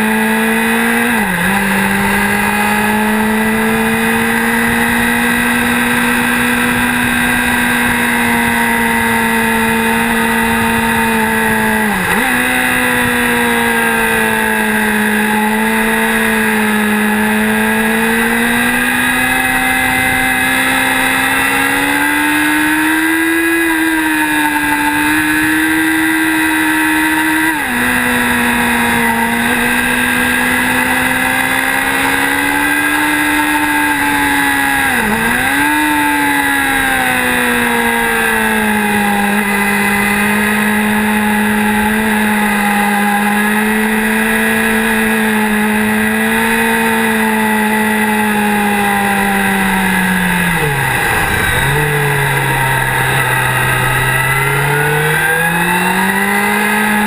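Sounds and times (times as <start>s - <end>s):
motorcycle engine revving: 0.0s - 57.0s
wind rush: 49.0s - 54.8s.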